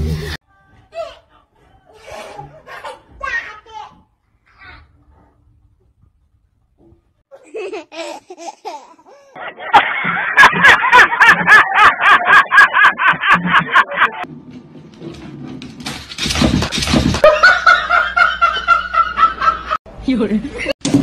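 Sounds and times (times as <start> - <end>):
small child's voice: 3.0 - 5.0
man laughing loudly: 9.4 - 14.2.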